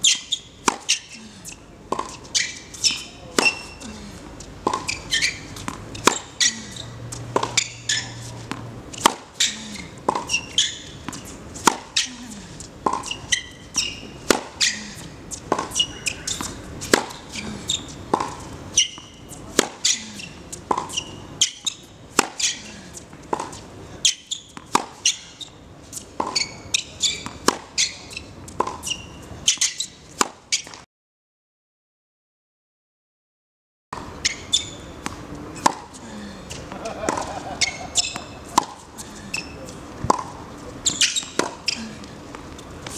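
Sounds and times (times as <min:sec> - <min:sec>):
shoe squeaks: 0:00.0 - 0:03.9, 0:04.7 - 0:12.2, 0:12.9 - 0:22.8, 0:23.4 - 0:30.8, 0:34.1 - 0:35.0, 0:37.5 - 0:40.2, 0:40.8 - 0:42.1
racket hitting tennis ball: 0:00.0 - 0:30.8, 0:34.0 - 0:42.9.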